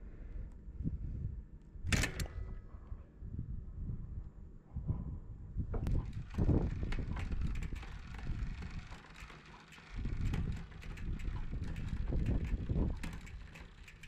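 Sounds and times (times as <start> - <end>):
wind rumble on microphone: 0.0 - 14.0
bike chain clicking: 5.9 - 14.0.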